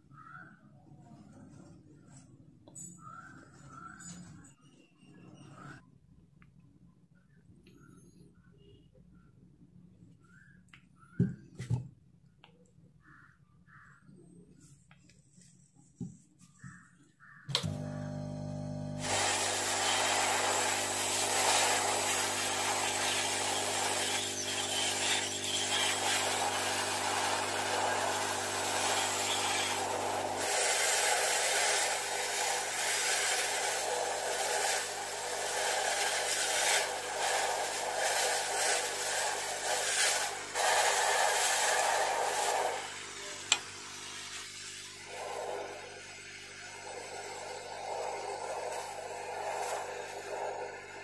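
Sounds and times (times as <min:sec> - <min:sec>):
heat gun blowing air: 0:17.5 - 0:51.0.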